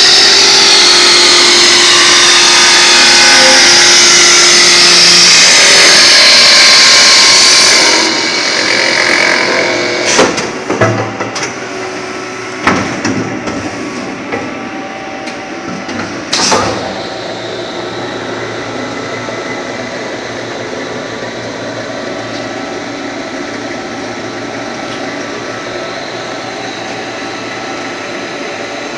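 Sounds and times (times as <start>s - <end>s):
lathe humming and whining: 0.0s - 28.9s.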